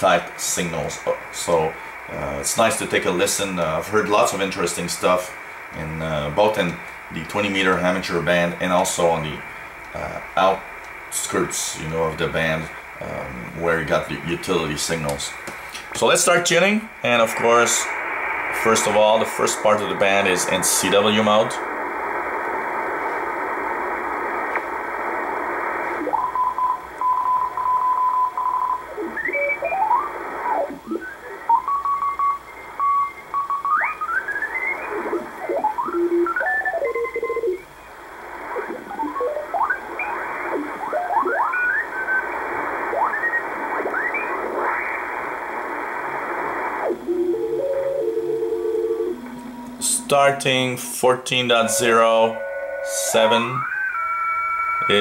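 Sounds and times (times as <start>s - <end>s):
shortwave hiss: 0.0s - 26.1s
morse code tones: 47.0s - 55.0s.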